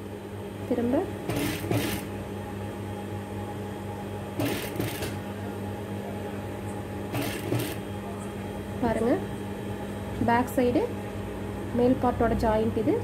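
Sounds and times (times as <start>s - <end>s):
sewing machine motor hum: 1.2s - 2.1s, 4.4s - 5.3s, 7.1s - 7.9s.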